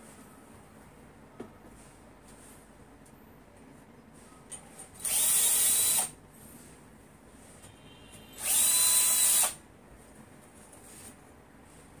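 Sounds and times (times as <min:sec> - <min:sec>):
cordless drill drilling into wall: 0:05.0 - 0:06.1, 0:08.4 - 0:09.6.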